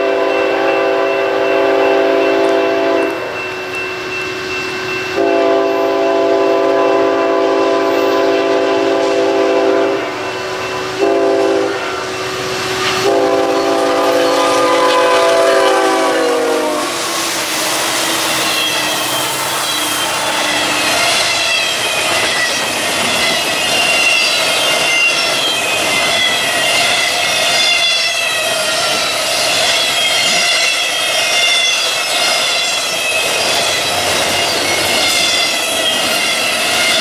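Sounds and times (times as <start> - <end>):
train air horn blasts: 0.0 - 3.3, 5.2 - 21.6
train wheels clattering on rails: 10.0 - 37.0.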